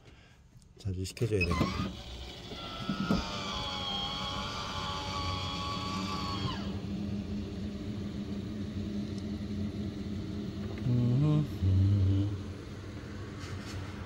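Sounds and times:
roof vent fan motor whine: 1.2s - 14.0s
low steady hum: 6.1s - 14.0s.

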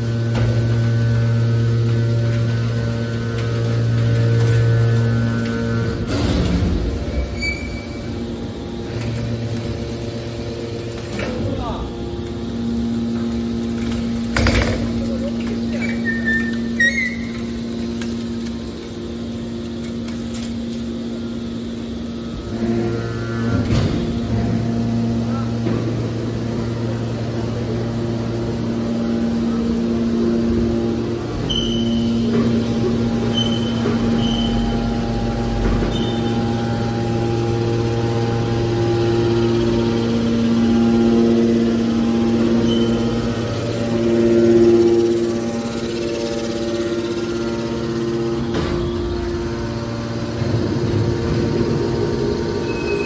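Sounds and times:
hydraulic pump humming: 0.0s - 53.0s
high metallic squeal: 7.0s - 8.3s, 15.7s - 17.6s, 31.4s - 32.3s, 33.2s - 35.0s, 35.8s - 36.7s, 42.4s - 48.2s, 52.5s - 53.0s.

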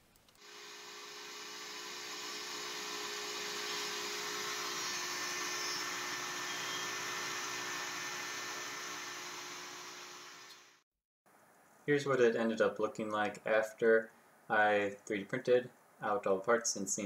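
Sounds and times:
router cutting plywood: 0.4s - 10.8s.

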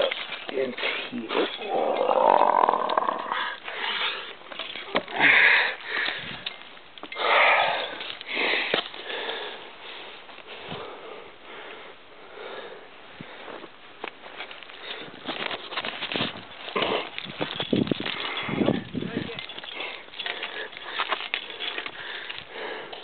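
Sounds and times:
person breathing hard: 5.1s - 6.4s, 7.1s - 13.7s, 19.6s - 23.0s.

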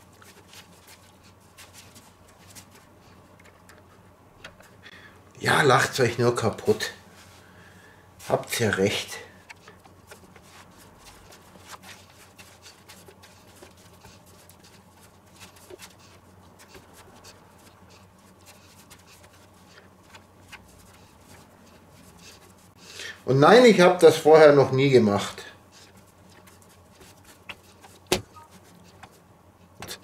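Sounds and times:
dough slapping on wood: 25.8s - 29.2s.

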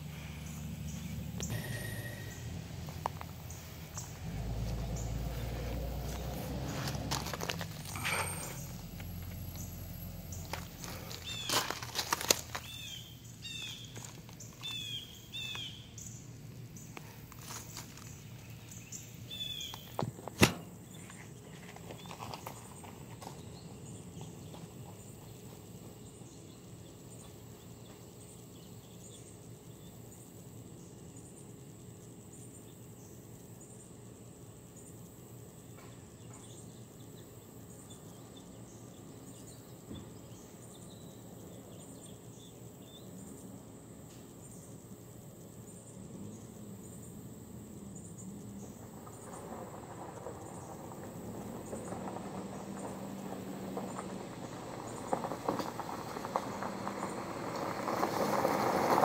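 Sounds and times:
car engine: 0.0s - 25.8s, 45.9s - 59.0s
insects chirring: 0.0s - 59.0s
tyres crunching on gravel: 0.1s - 26.6s, 48.5s - 59.0s.

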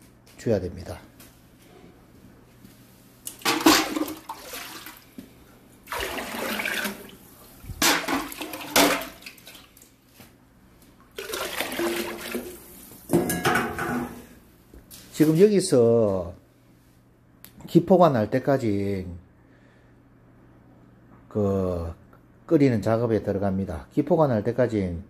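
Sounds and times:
water pouring and splashing: 3.3s - 5.1s, 5.8s - 10.0s, 11.2s - 12.9s.

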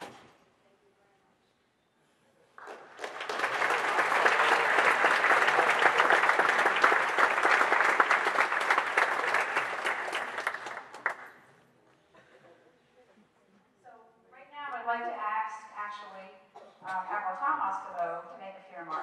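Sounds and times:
audience applauding: 2.6s - 11.4s.

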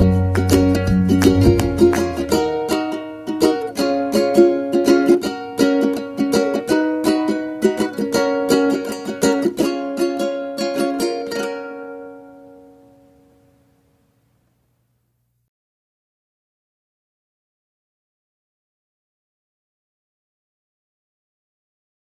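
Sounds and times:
low bass: 0.0s - 3.0s
plucked string tune: 0.0s - 13.6s.

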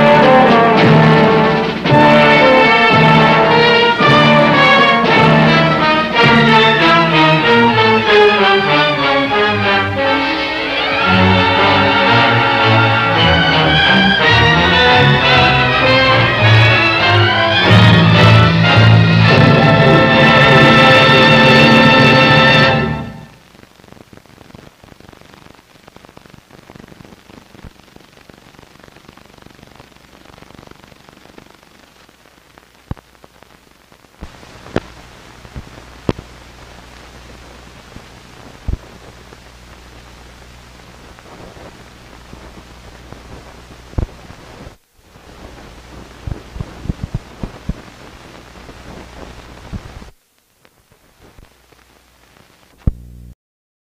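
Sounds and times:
film soundtrack hiss: 0.0s - 53.4s
clicks and pops: 32.8s - 33.1s, 34.2s - 36.3s, 46.2s - 47.9s, 48.9s - 53.1s.

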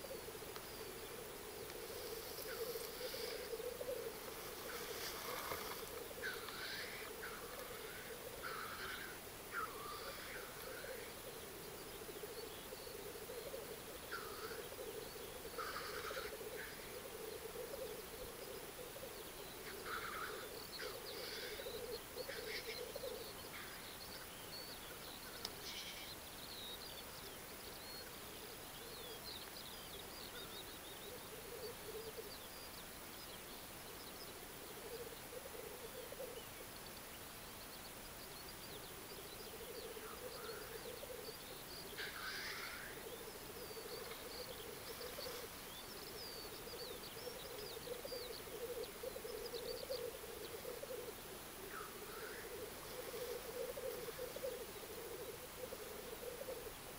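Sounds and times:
short hissing calls: 25.5s - 26.2s, 42.0s - 43.0s
grouse bubbling song: 38.4s - 56.9s.

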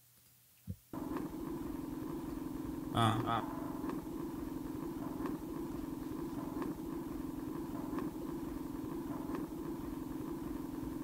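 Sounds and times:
low fluttering hum: 1.0s - 11.0s.

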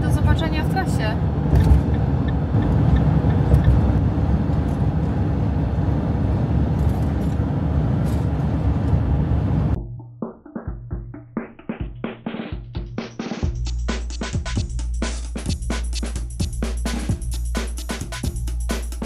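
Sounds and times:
road and engine noise: 0.0s - 9.8s.

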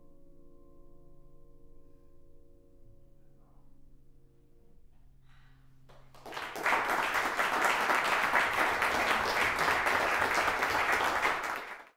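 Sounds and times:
audience applause: 6.1s - 11.9s.

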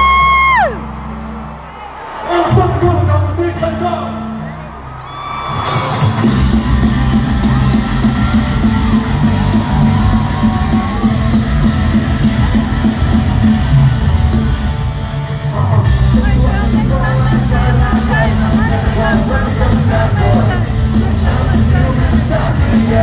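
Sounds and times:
heavy drums: 5.5s - 23.0s
live rock band playing: 5.5s - 23.0s
distorted electric guitar: 5.6s - 23.0s.

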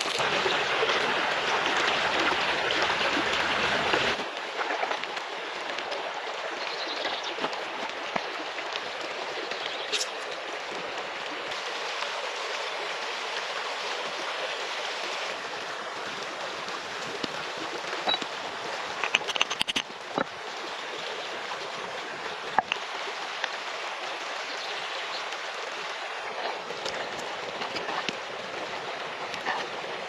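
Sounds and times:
river rushing over stones: 0.0s - 30.0s
sharp clicks: 19.0s - 19.8s.

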